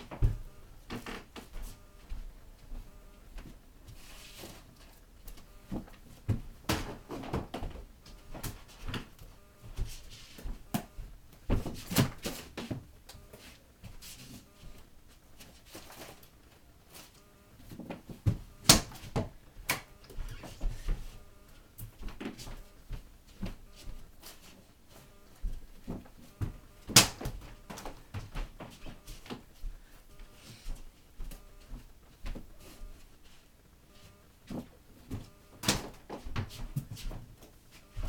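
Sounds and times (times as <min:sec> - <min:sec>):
person moving about: 0:00.0 - 0:38.0.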